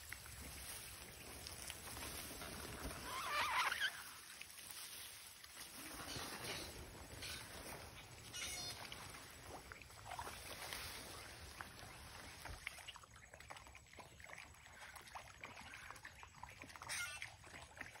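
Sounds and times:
rustling in leaf litter: 0.0s - 12.8s
soft water sloshing: 0.0s - 18.0s.

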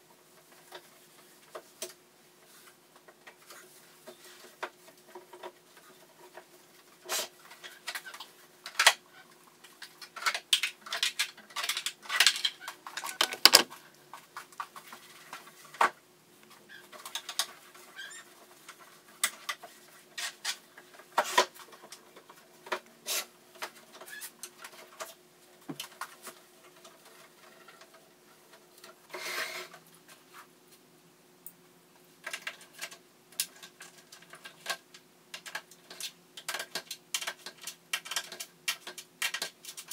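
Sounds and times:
items clattering against drawer: 11.7s - 13.8s
drawer pulled open: 13.1s - 13.7s.

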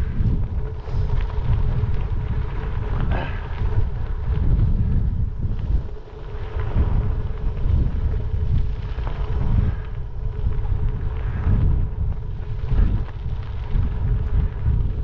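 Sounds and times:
bike tyres rolling on gravel: 0.0s - 15.0s
wind buffeting microphone: 0.0s - 15.0s.

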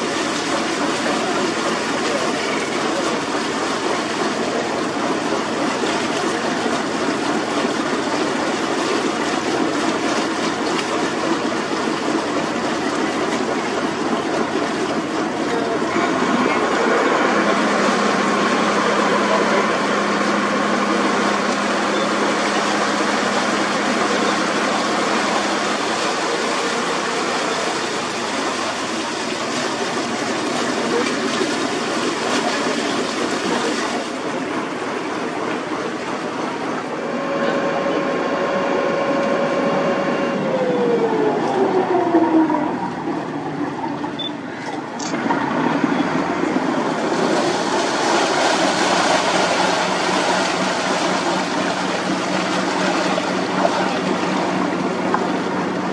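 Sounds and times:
dense wash of noise: 0.0s - 55.9s
humming motor passing: 36.8s - 44.0s.

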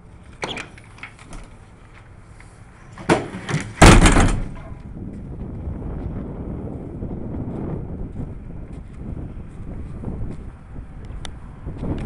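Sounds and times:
loud clunk: 3.0s - 4.8s
wind noise on microphone: 3.7s - 12.0s.

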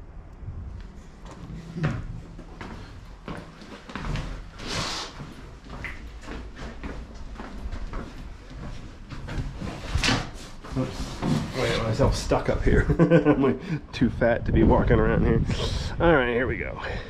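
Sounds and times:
footsteps on wooden floor: 1.2s - 11.7s.

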